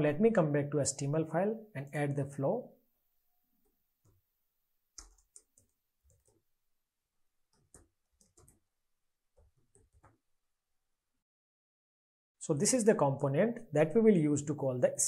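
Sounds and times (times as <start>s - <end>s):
faint keyboard typing: 5.0s - 6.5s, 7.5s - 8.7s, 9.4s - 10.2s.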